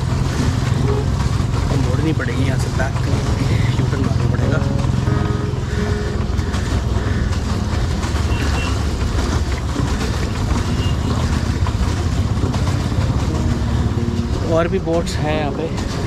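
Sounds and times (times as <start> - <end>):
paddle wheel churning water: 0.0 - 16.0.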